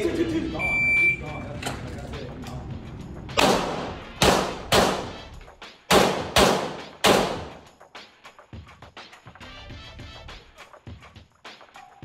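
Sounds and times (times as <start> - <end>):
pistol shots ringing indoors: 3.4 - 5.2, 5.9 - 7.6.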